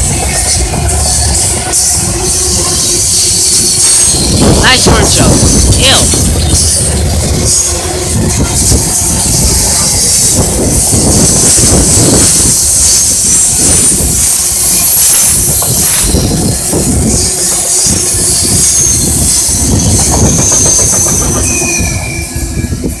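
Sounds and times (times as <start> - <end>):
high-pitched wheel squeal: 0.2 - 23.0
train wheels clacking over rail joints: 5.3 - 23.0.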